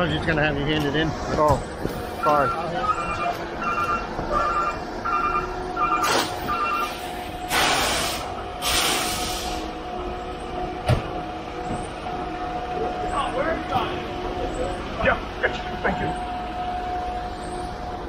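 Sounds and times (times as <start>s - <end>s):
truck engine running: 0.0s - 18.0s
truck backup alarm beeping: 2.0s - 7.6s.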